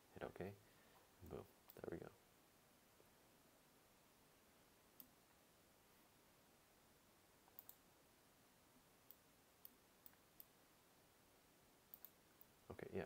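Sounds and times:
faint computer mouse clicks: 7.5 - 7.8, 11.9 - 12.5.

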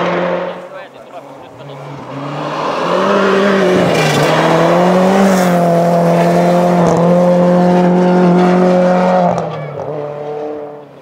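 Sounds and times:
rally car engine at high revs: 0.0 - 0.7, 1.4 - 11.0
tyres rushing through snow: 1.0 - 8.6.

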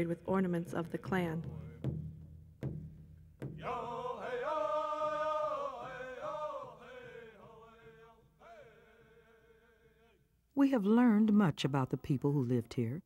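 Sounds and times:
drum-like knocks: 0.0 - 8.2
person singing slow held chant: 3.6 - 10.2.

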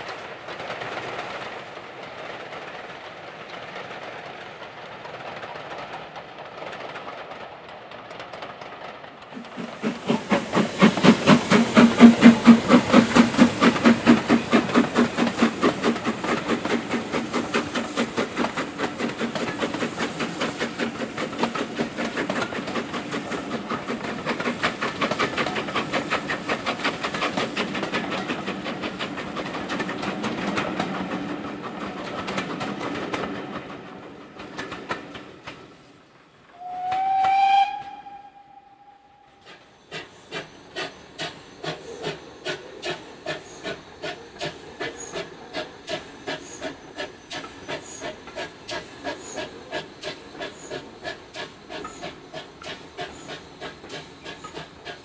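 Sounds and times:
steam locomotive chugging: 0.0 - 55.0
steam whistle blast: 36.6 - 39.3.

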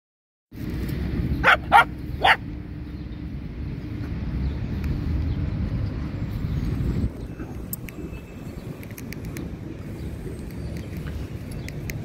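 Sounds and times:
wind rumble on microphone: 0.6 - 12.0
dog barking: 1.4 - 2.4.

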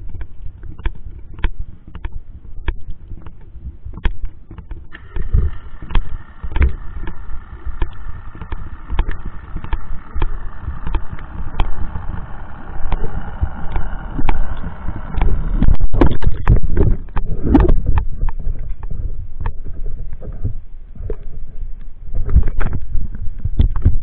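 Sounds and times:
muffled underwater engine rumble: 0.0 - 24.0
sharp clicks and knocks: 0.0 - 24.0
high propeller whine: 4.9 - 17.3.

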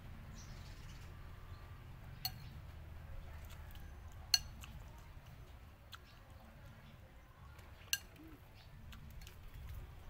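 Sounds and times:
metal spoon clinking bowl: 2.2 - 2.5, 4.3 - 4.7.

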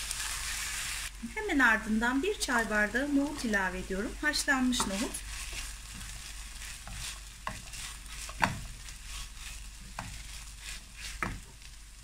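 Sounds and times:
food sizzling in a frying pan: 0.0 - 12.0
spatula scraping a pan: 4.6 - 11.8.

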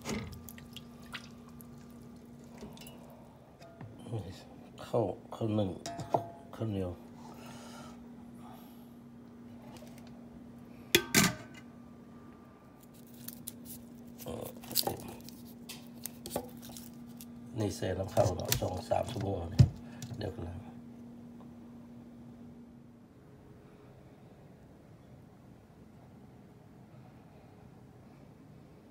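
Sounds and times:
faint steady hum: 0.0 - 28.9.

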